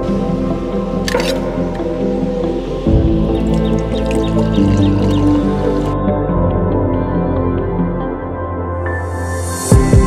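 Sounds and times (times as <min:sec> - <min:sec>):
background music with held notes: 0:00.0 - 0:10.0.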